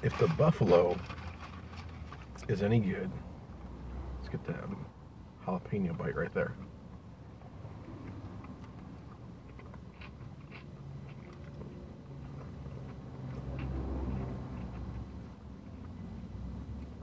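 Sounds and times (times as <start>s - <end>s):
low steady hum: 0.0s - 17.0s
person chewing food: 7.8s - 16.0s
short crunches: 8.5s - 15.2s.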